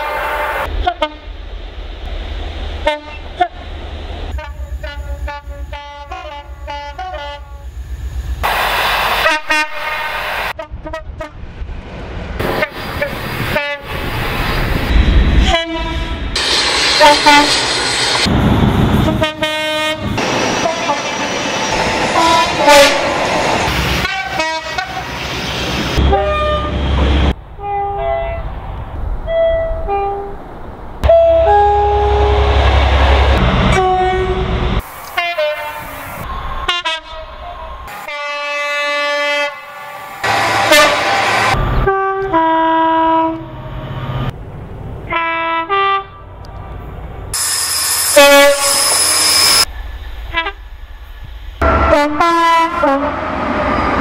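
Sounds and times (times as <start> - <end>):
two-tone locomotive horns: 0.0 - 1.4, 2.8 - 3.6, 4.3 - 7.7, 9.2 - 11.4, 12.4 - 13.9, 15.4 - 16.4, 17.0 - 17.6, 19.0 - 21.3, 22.1 - 23.1, 24.0 - 25.2, 26.0 - 28.5, 29.3 - 30.4, 31.0 - 36.0, 36.6 - 44.1, 45.1 - 46.4, 47.4 - 49.7, 50.3 - 50.6, 51.6 - 53.7.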